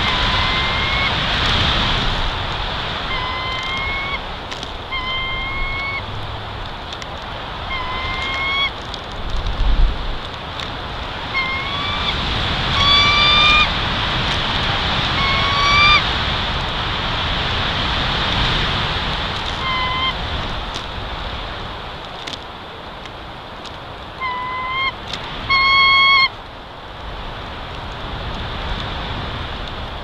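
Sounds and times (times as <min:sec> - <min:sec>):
bird call rising: 0:00.0 - 0:01.3, 0:03.0 - 0:06.2, 0:07.6 - 0:08.8, 0:11.2 - 0:13.8, 0:15.0 - 0:16.1, 0:19.6 - 0:20.2, 0:24.2 - 0:26.4
wind through pines: 0:00.0 - 0:30.0.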